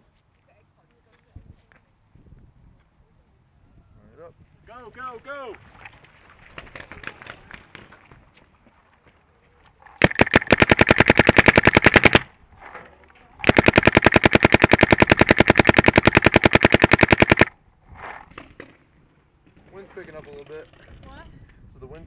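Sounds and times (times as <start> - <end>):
paintball marker rapid firing: 10.0 - 12.3, 13.4 - 17.6.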